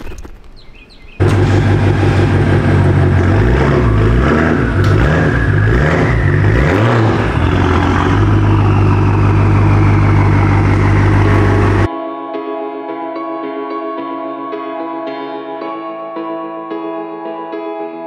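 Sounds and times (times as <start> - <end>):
engine running with pitched hum: 1.2 - 11.9.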